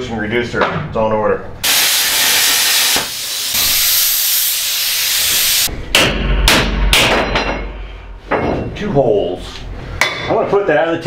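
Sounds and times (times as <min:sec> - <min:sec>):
loud steady hiss: 0:01.6 - 0:05.7
short hissing bursts: 0:01.6 - 0:05.7.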